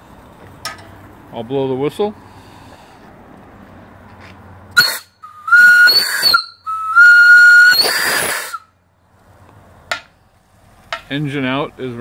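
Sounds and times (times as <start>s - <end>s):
steam whistle blasts: 4.8s - 8.7s
steam hissing: 7.4s - 8.6s.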